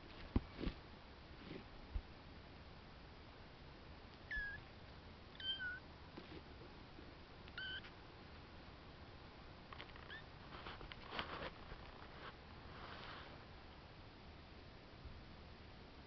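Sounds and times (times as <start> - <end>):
kitten mewing: 4.3 - 4.6, 5.4 - 5.8, 7.5 - 7.9.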